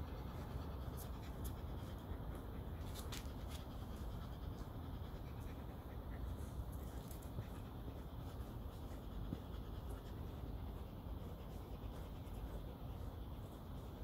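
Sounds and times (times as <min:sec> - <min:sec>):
brush scratching through fur: 0:00.0 - 0:14.0
low steady rumble: 0:00.0 - 0:14.0.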